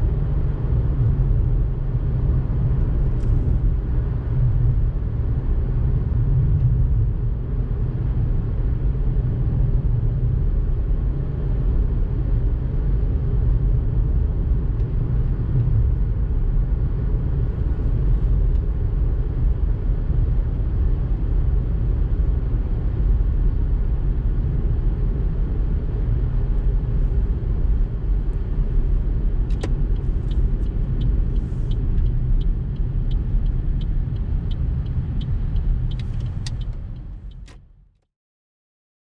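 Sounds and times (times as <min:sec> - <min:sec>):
car road and engine rumble: 0:00.0 - 0:38.0
light ticking: 0:29.5 - 0:37.6.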